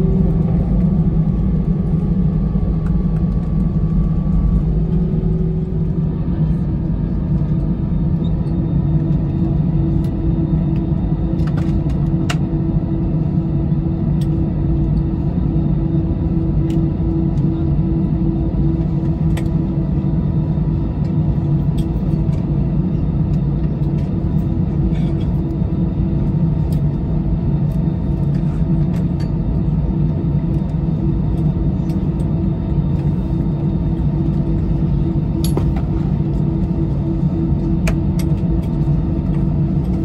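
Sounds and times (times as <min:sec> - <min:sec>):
jet engines idling: 0:00.0 - 0:40.0.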